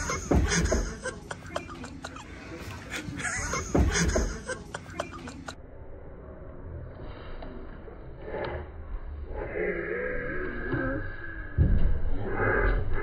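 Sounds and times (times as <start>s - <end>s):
knocks and bumps of scrambling: 0.0s - 1.1s, 3.4s - 4.4s
bursts of laughter: 0.0s - 5.6s.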